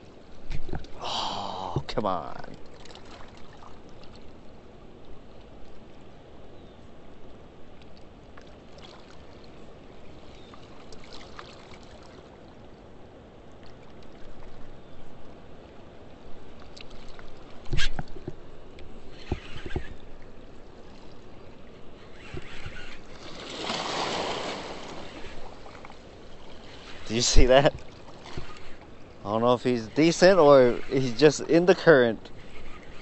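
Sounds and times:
faint clicks: 16.6s - 20.3s.

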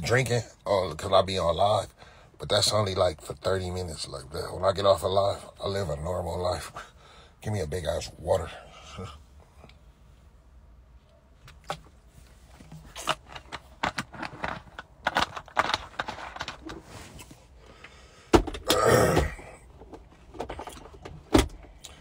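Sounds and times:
plastic water bottle crackling: 12.7s - 16.8s.

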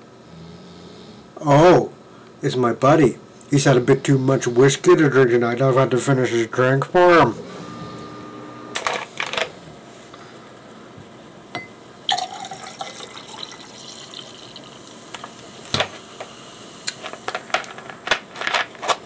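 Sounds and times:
drink poured into a glass: 12.1s - 15.4s.

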